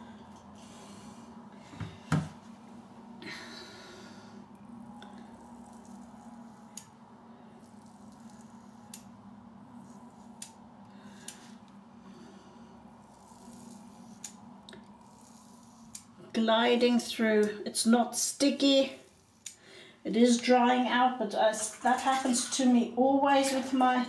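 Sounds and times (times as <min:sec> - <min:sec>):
razor scraping over skin: 0:05.3 - 0:06.9, 0:07.6 - 0:09.0, 0:13.0 - 0:16.2.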